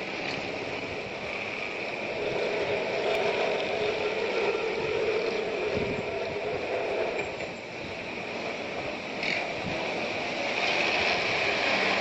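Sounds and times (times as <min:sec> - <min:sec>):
electric tram running on rails: 0:00.0 - 0:12.0.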